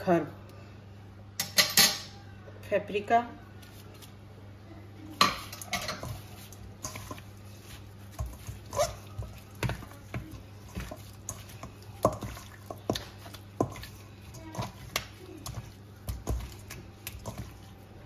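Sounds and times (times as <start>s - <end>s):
raw chicken squelching: 6.0s - 18.0s.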